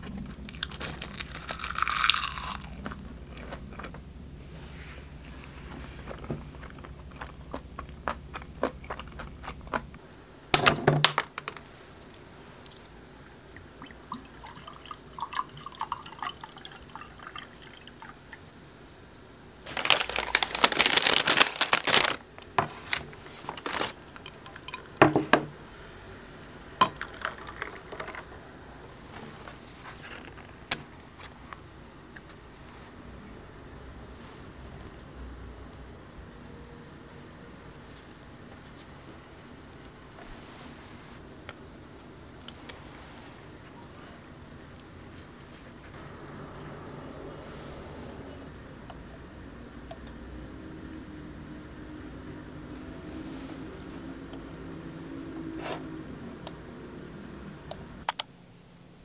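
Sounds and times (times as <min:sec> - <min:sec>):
liquid poured into glass: 0:13.8 - 0:18.1.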